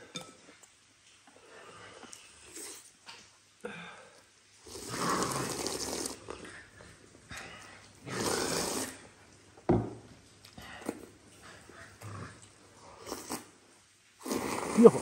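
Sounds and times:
person slurping noodles: 1.7s - 2.9s, 4.6s - 6.7s, 8.0s - 9.1s, 12.0s - 13.6s, 14.2s - 15.0s.

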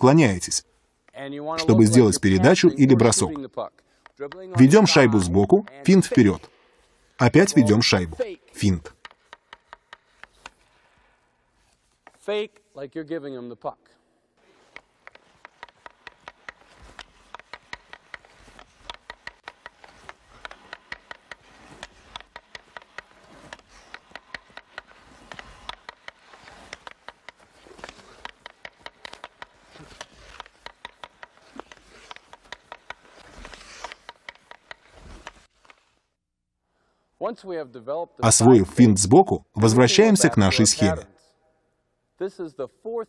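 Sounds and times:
hockey stick knocking puck: 8.9s - 12.3s, 14.4s - 36.0s.

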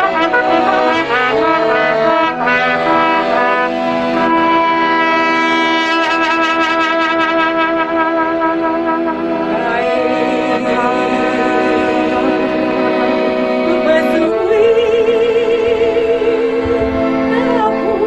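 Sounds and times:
trumpet melody: 0.0s - 15.0s
accordion: 0.0s - 18.0s
woman singing with vibrato: 9.5s - 13.0s, 13.7s - 18.0s.

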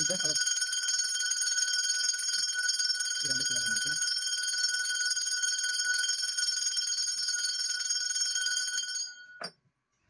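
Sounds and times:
brass hand bell ringing rapidly: 0.0s - 9.0s.

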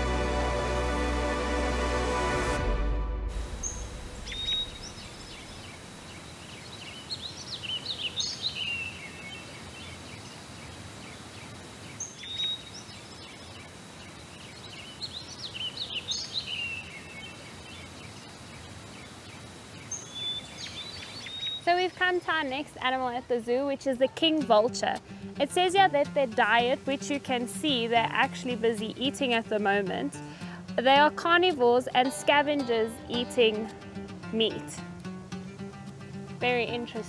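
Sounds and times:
outdoor background hiss: 0.0s - 37.0s
songbird singing high sweeping notes: 3.4s - 18.3s, 18.9s - 22.0s.

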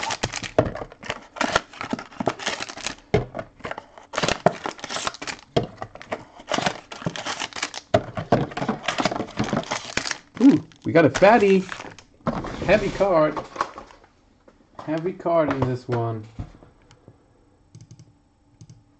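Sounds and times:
foil packs crinkling: 0.0s - 14.1s.

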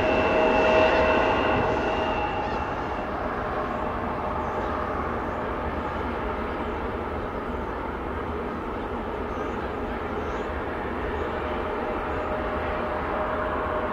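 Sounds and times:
jet engine rush: 0.0s - 8.4s.

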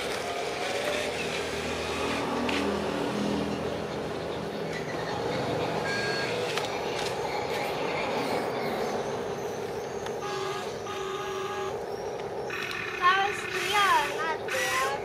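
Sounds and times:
horn toots: 10.2s - 11.8s.

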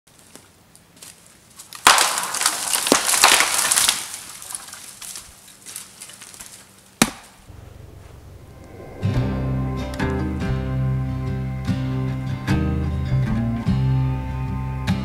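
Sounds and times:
footsteps crunching through deadfall: 0.1s - 8.2s
twigs snapping underfoot: 0.2s - 7.4s.

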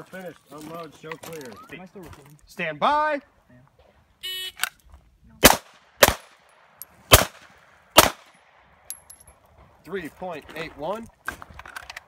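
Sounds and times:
handgun shots: 5.4s - 6.4s, 7.1s - 7.4s, 8.0s - 8.3s.

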